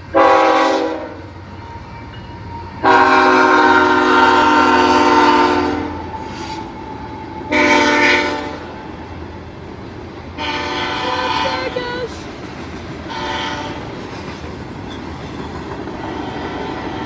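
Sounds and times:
train rumbling by: 0.0s - 17.0s
locomotive air horn: 0.1s - 1.3s, 2.8s - 6.7s, 7.5s - 8.7s, 10.4s - 12.1s, 13.1s - 13.9s.

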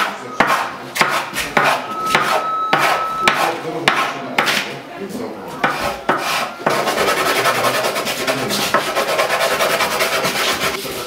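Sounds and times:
rasping strokes on wood: 5.6s - 11.0s.

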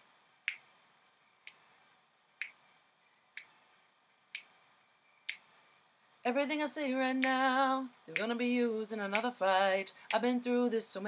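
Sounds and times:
finger snaps: 0.5s - 0.7s, 2.4s - 2.6s, 5.3s - 5.5s, 7.2s - 7.4s
a cappella singing: 6.3s - 11.0s.

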